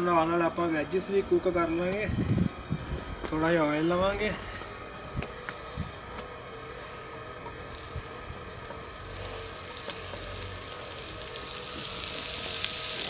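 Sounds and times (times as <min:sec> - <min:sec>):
oil sizzling in a pan: 0:07.6 - 0:13.0.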